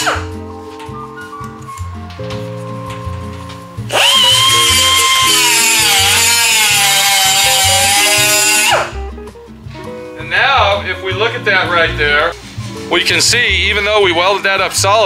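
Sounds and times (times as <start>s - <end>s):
background music: 0.0s - 15.0s
pneumatic grinder grinding metal: 3.9s - 9.0s.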